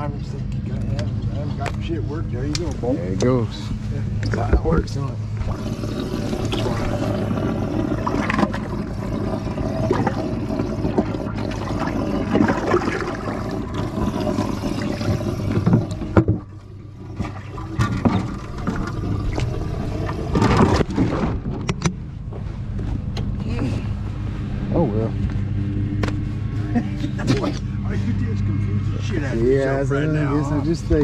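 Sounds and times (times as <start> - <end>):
low mechanical hum: 0.0 - 31.0
water gurgling and splashing: 4.4 - 21.6
knocks and scrapes: 20.2 - 23.3.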